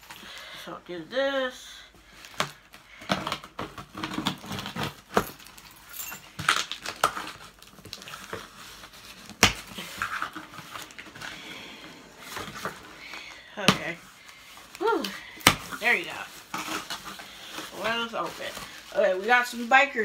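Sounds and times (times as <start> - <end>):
cardboard scraping and rustling: 6.9 - 14.8, 15.6 - 19.3
key dragged through packing tape: 9.8 - 13.4.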